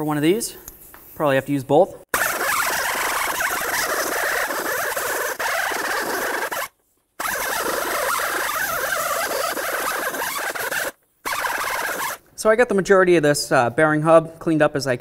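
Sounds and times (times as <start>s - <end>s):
rotary tool grinding metal: 2.2s - 12.2s.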